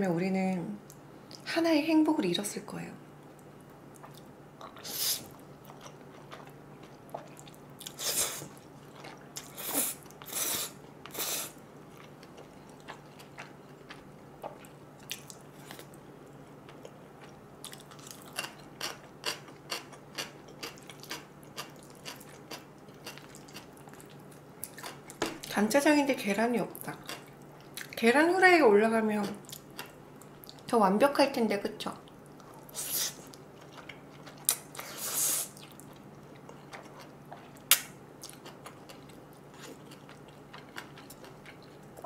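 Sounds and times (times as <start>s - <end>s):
faint low hum: 0.0s - 42.0s
wet chewing: 3.4s - 16.0s, 16.7s - 25.5s, 32.1s - 42.0s.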